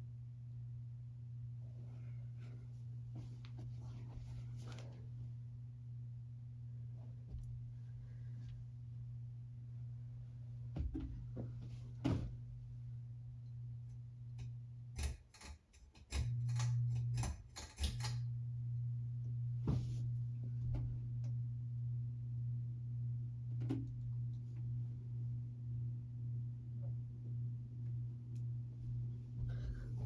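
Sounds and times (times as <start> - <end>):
ceiling fan motor hum: 0.0 - 30.0.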